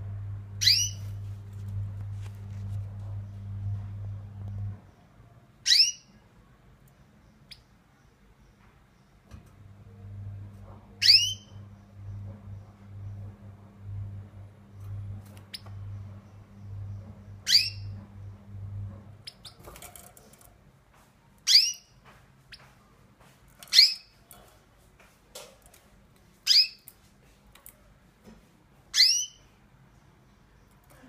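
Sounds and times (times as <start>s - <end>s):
low steady hum: 0.0s - 5.7s, 8.1s - 20.6s.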